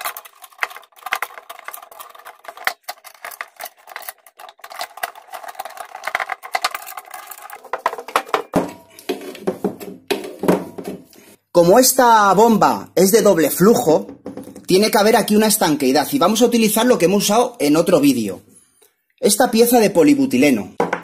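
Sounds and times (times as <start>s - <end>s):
metal nuts clicking and rattling: 0.0s - 8.6s.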